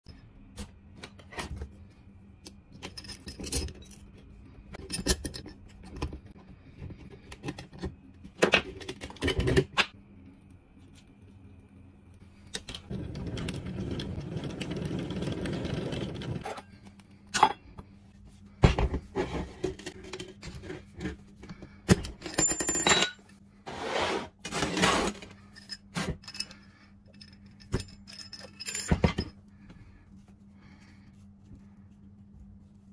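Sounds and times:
metal clinks and scrapes: 0:24.5 - 0:29.4.

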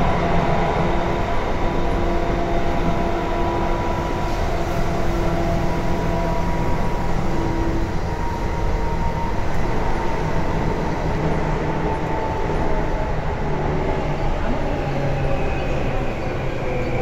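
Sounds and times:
train wheels rumbling in tunnel: 0:00.0 - 0:17.0.

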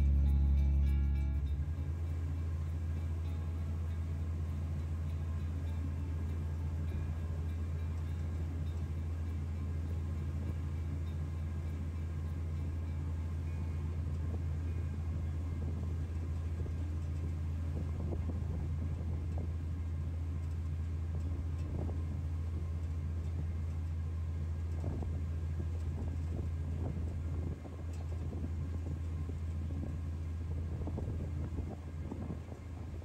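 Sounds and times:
vehicle engine drone: 0:00.0 - 0:33.0.

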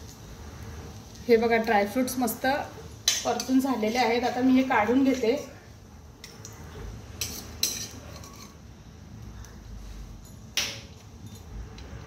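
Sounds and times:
metal spoon scraping a pan: 0:02.8 - 0:05.6, 0:06.2 - 0:08.6.

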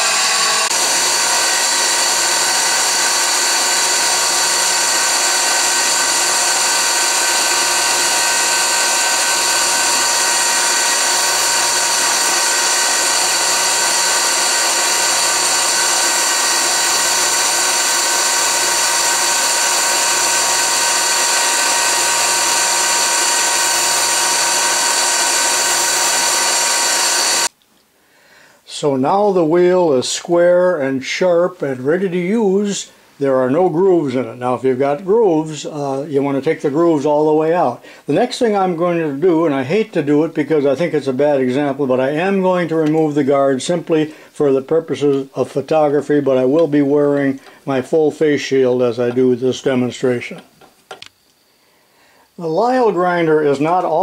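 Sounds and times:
grinder motor spinning wheel: 0:00.0 - 0:27.5.

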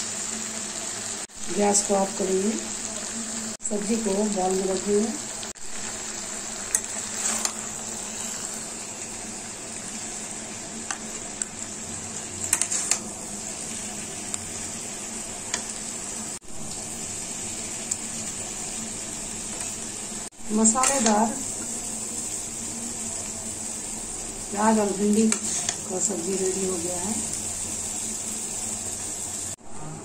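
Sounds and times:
hot pan sizzling: 0:00.0 - 0:29.6
metal spatula scraping metal pan: 0:07.1 - 0:08.5, 0:12.4 - 0:13.0, 0:25.2 - 0:25.8.

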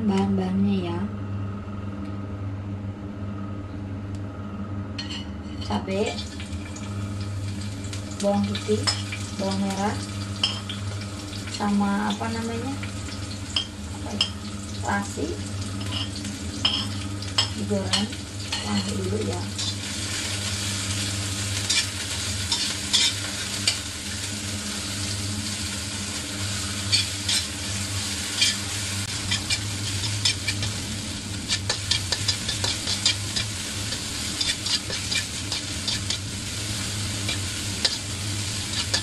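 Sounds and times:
steady low hum: 0:00.0 - 0:39.0
food sizzling in hot oil: 0:05.0 - 0:39.0
spatula scraping a wok: 0:21.6 - 0:23.8, 0:26.7 - 0:39.0.

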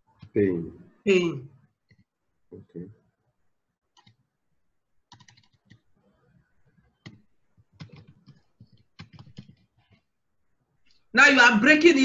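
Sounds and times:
computer keyboard typing: 0:01.9 - 0:02.1, 0:03.9 - 0:04.2, 0:05.1 - 0:05.9, 0:06.8 - 0:10.1.

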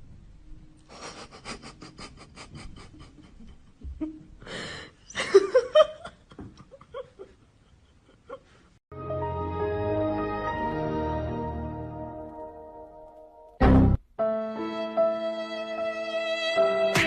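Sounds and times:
person laughing breathily: 0:00.8 - 0:06.1.

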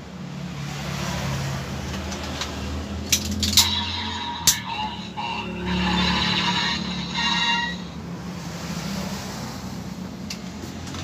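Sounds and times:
low hum: 0:03.0 - 0:08.0
rushing noisy effect: 0:03.0 - 0:08.0.

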